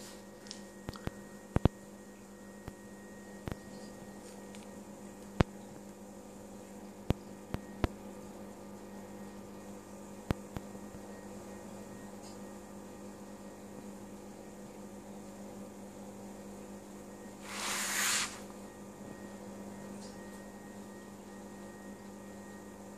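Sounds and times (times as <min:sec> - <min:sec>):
low electrical hum: 0:00.0 - 0:22.9
brief hiss: 0:17.4 - 0:18.5.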